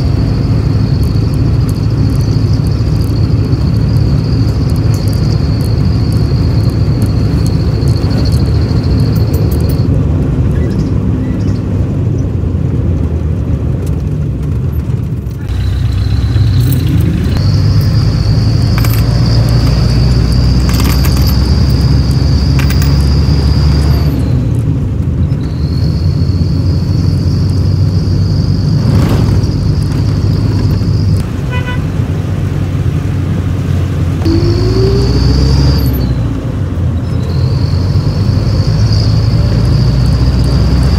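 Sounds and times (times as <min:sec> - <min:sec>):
road vehicle rumble: 0:00.0 - 0:40.9
high-pitched buzz: 0:34.2 - 0:36.2.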